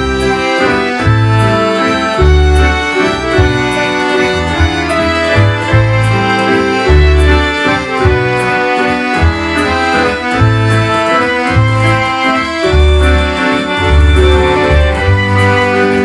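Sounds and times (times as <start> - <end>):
accordions playing a waltz: 0.0 - 16.0
deep bass notes: 0.0 - 16.0
keyboard: 0.0 - 16.0.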